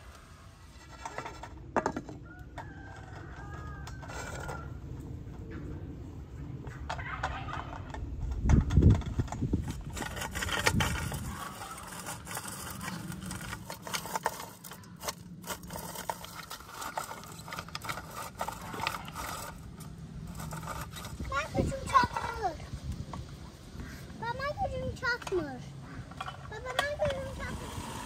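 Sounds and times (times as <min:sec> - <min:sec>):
nuts rasping in drum grater: 0:09.4 - 0:22.4.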